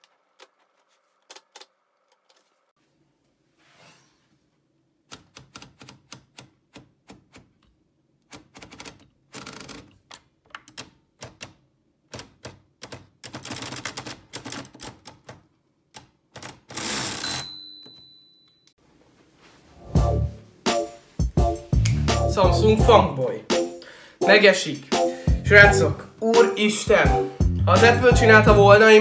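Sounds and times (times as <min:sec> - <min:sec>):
typewriter keystrokes clicking: 0:08.3 - 0:15.4
typewriter rattling: 0:08.4 - 0:10.0, 0:10.6 - 0:15.4, 0:16.0 - 0:17.4.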